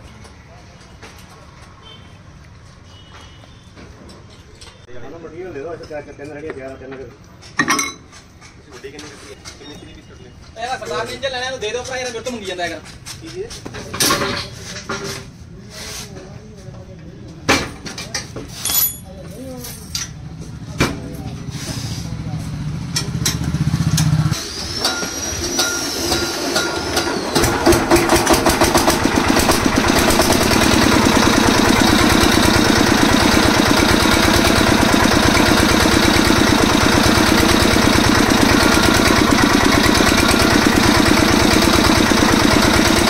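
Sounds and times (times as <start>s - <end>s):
diesel engine starting and running: 21.5s - 43.0s.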